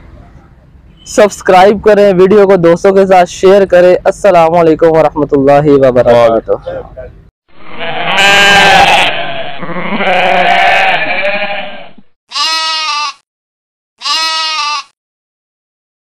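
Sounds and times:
sheep bleating: 7.6 - 13.2, 14.0 - 15.0.

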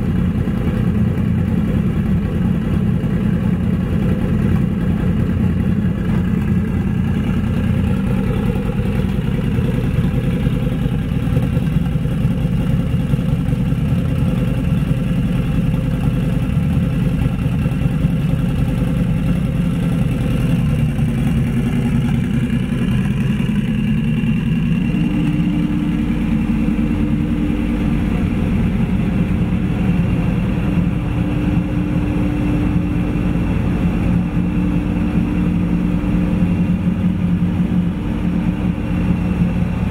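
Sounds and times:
motorcycle engine running on dyno: 0.0 - 39.9
steady higher hum: 18.8 - 39.9.

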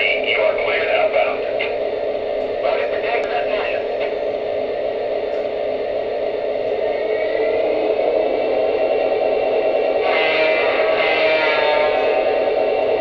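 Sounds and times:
model train turbine whir: 0.0 - 13.0
multi-tone horn sound: 10.0 - 12.5.

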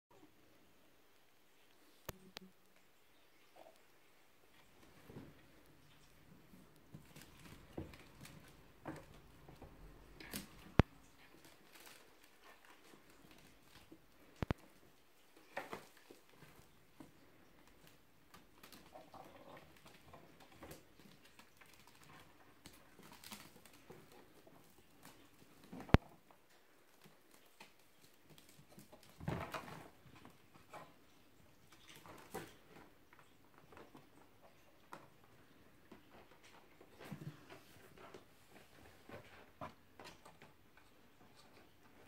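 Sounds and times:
kittens' paws pattering: 1.6 - 42.0
kittens scuffling: 1.7 - 42.0
wicker rustling: 4.6 - 34.4.

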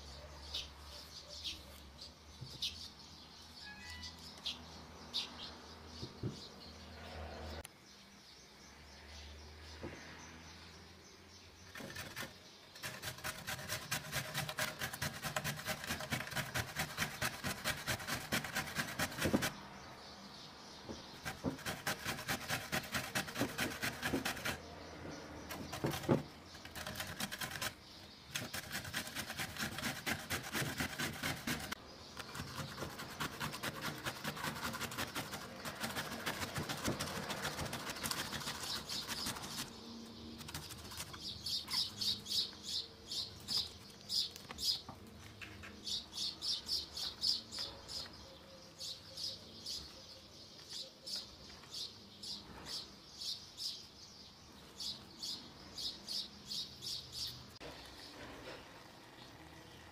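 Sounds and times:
bird chirping: 0.0 - 59.9
zucchini grating on box grater: 11.7 - 19.6, 21.2 - 24.6, 25.5 - 39.8.

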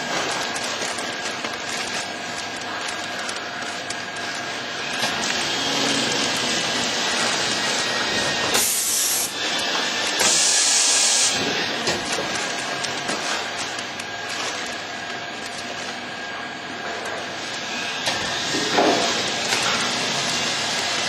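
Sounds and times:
packaging machine clattering: 0.0 - 21.0
loud air hisses: 8.5 - 9.4, 10.2 - 11.5.

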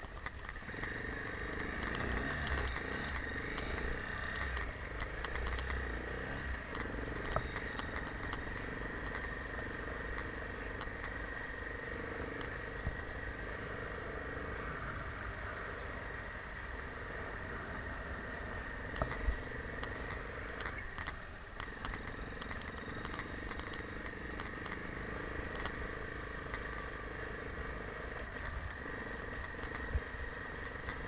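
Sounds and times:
rattling clicks: 0.0 - 5.9, 6.5 - 11.2, 18.9 - 27.0
motorcycle engine running: 0.0 - 31.0.

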